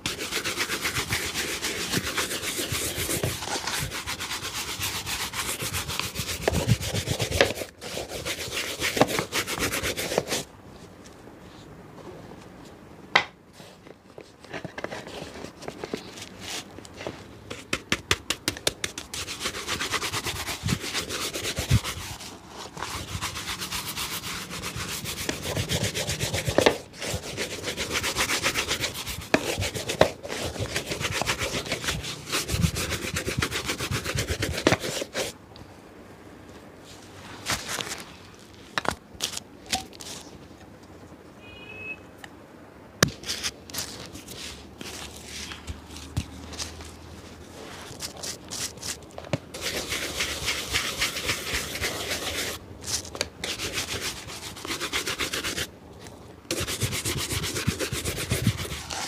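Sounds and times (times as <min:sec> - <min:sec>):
shoe brushing strokes: 0:00.0 - 0:10.5, 0:17.6 - 0:35.4, 0:43.1 - 0:55.7, 0:56.5 - 0:59.0.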